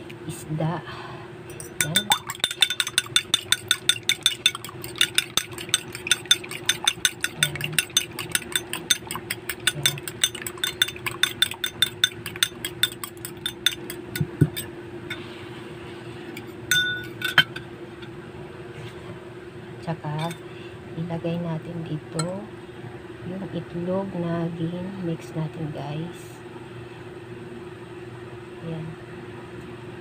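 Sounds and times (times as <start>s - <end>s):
steady low hum: 0.0s - 30.0s
fork clinking against bowl: 1.5s - 14.7s.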